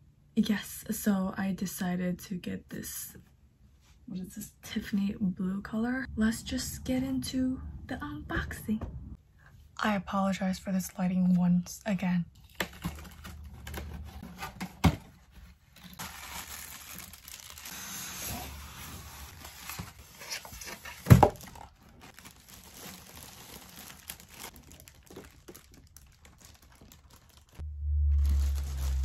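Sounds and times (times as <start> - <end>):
cardboard rustling: 12.6 - 27.6
plastic bag crinkling: 15.8 - 17.9, 19.0 - 29.0.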